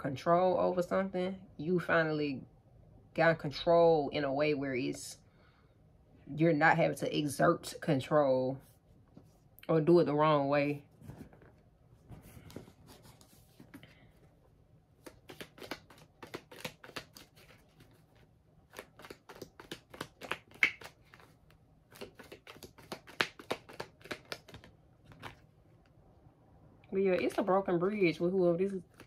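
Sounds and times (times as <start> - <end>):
cards being shuffled: 11.0 - 14.1, 15.0 - 25.5, 28.8 - 29.0.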